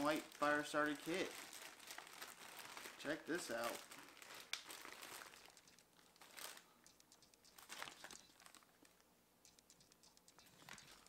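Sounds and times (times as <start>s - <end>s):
plastic bag crinkling: 0.0s - 6.9s, 7.5s - 9.0s.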